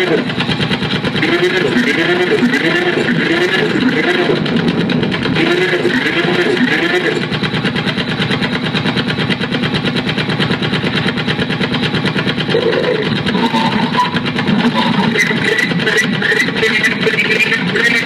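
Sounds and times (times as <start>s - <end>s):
rapid stuttering electronic buzz: 0.0s - 10.2s, 12.4s - 18.0s
wavering pitched tones: 12.5s - 16.6s.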